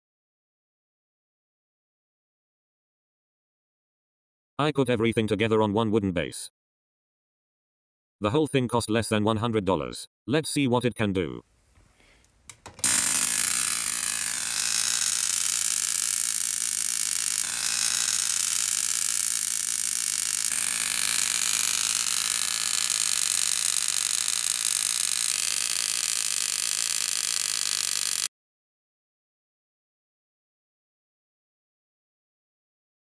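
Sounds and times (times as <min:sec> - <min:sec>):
tesla coil buzzing crackle: 0:12.8 - 0:28.3.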